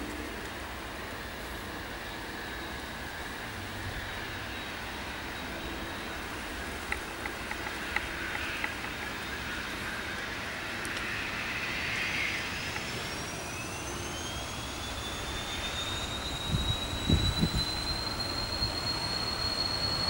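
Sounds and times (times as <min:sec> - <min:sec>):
jet engines rushing and whining: 0:00.0 - 0:20.0
sharp ticks: 0:06.8 - 0:09.1.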